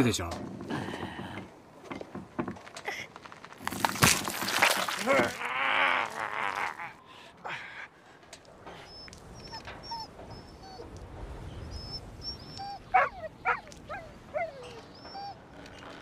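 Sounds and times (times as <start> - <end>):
dog whimpering: 8.8 - 10.9, 11.8 - 16.0.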